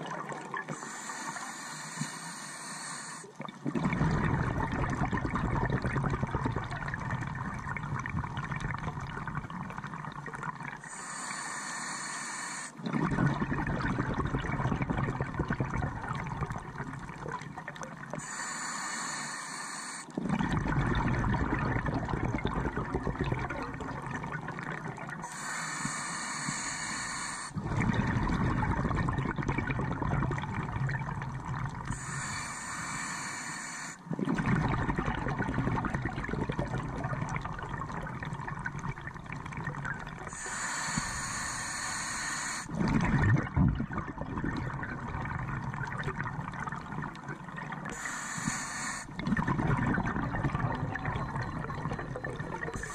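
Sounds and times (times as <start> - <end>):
diver breathing through regulator: 0.7 - 3.4, 10.8 - 13.2, 18.2 - 20.2, 25.2 - 29.0, 31.8 - 35.0, 40.2 - 43.2, 47.9 - 51.8, 52.6 - 52.9.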